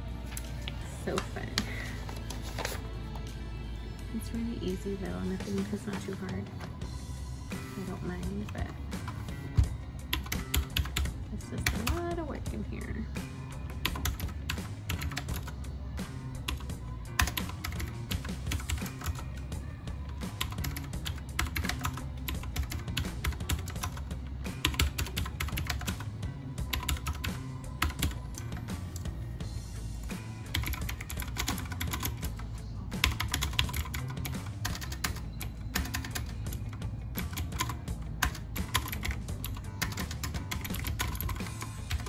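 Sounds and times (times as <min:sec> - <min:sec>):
background music: 0:00.0 - 0:42.0
typing on computer keyboard: 0:10.2 - 0:12.0, 0:13.9 - 0:15.5, 0:16.5 - 0:19.3, 0:20.4 - 0:24.0, 0:24.6 - 0:26.0, 0:26.7 - 0:28.6, 0:30.5 - 0:32.4, 0:33.0 - 0:42.0.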